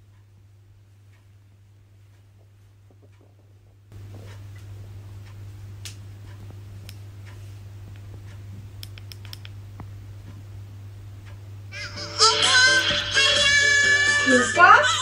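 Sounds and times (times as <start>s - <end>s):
small clicks and ticks: 8.0s - 9.6s.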